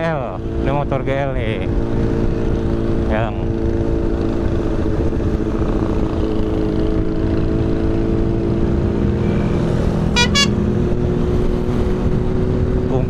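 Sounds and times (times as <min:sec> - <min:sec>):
motorcycle engine cruising: 0:00.0 - 0:13.0
wind and road noise: 0:00.0 - 0:13.0
horn beeps: 0:10.1 - 0:10.6.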